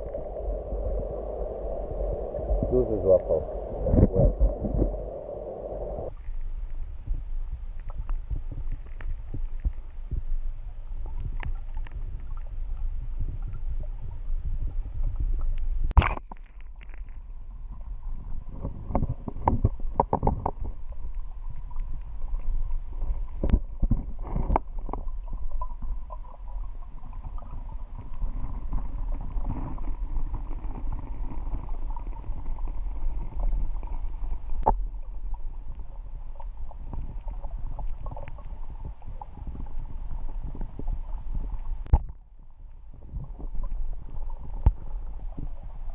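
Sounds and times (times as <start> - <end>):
underwater rumble of water: 0.0 - 45.9
underwater clicks and knocks: 11.0 - 12.6, 18.5 - 26.4, 41.8 - 42.3.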